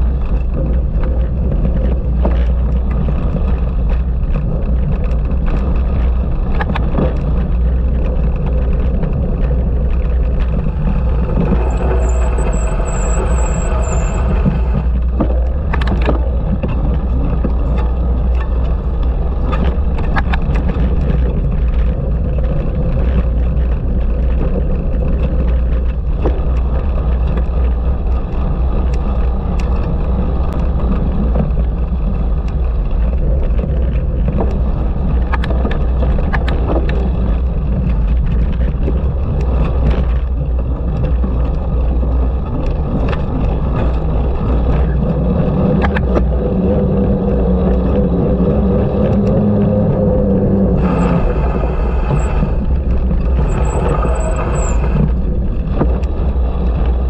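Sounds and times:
bicycle tyre noise: 0.0 - 57.0
bike rattling over bumps: 0.0 - 57.0
wind buffeting microphone: 0.0 - 57.0.

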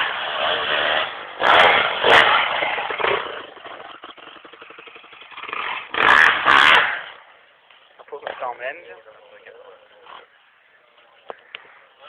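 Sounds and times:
dirt bike engine revving: 0.0 - 7.4.

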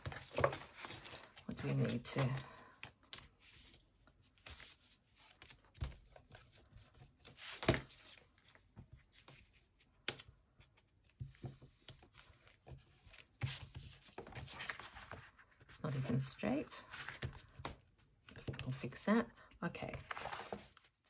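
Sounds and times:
paper rustling and sliding: 0.0 - 3.8, 11.4 - 16.1, 20.0 - 20.8.

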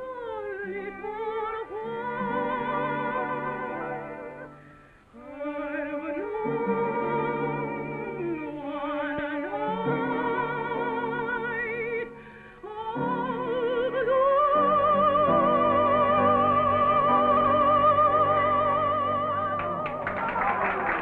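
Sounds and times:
operatic soprano singing: 0.0 - 21.0
crowd noise: 19.6 - 21.0.

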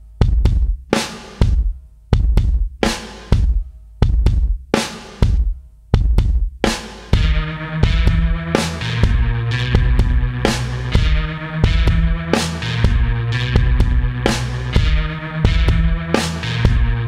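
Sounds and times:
punchy drum beat: 0.0 - 17.0
sustained instruments: 7.2 - 17.0.

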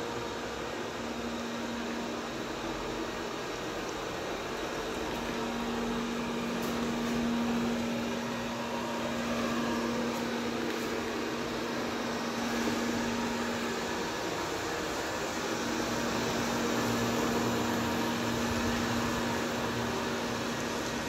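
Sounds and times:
robot vacuum cleaner hum: 4.4 - 21.0.

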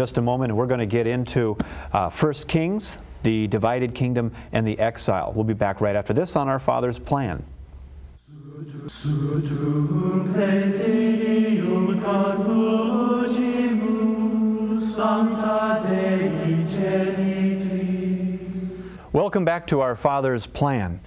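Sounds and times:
slow choral chant: 8.2 - 19.0.

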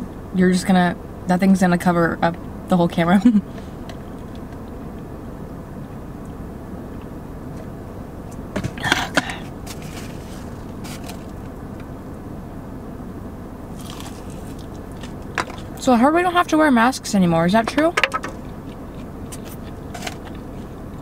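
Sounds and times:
car interior hum: 0.0 - 21.0
eating sounds: 13.7 - 15.8, 18.3 - 21.0.

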